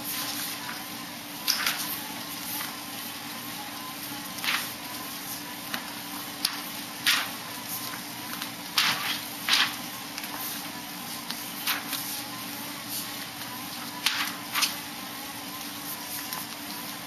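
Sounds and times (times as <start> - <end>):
paper rustling: 4.4 - 4.8, 6.6 - 10.6, 11.3 - 12.2, 13.9 - 14.8.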